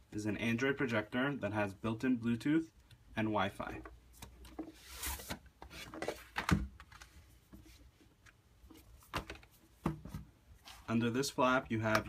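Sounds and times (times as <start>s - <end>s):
box sliding out of sleeve: 4.8s - 6.2s.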